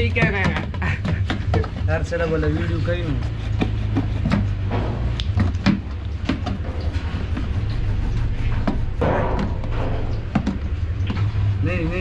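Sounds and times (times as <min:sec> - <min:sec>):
blade rasping through plastic: 0:00.2 - 0:04.7
knife scraping plastic: 0:00.4 - 0:04.7.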